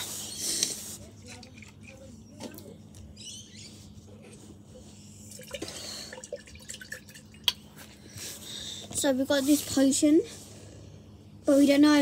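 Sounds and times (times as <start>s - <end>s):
water dripping: 5.3s - 7.6s.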